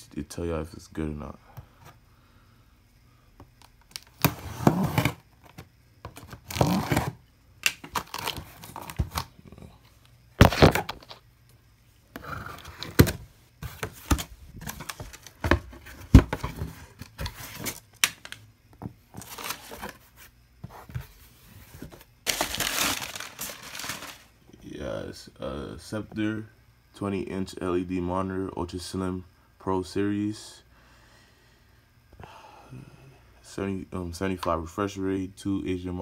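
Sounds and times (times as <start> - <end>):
cardboard tearing and scraping: 4.0 - 5.2, 6.2 - 7.2, 22.3 - 24.3
knife cutting packing tape: 6.4 - 9.0.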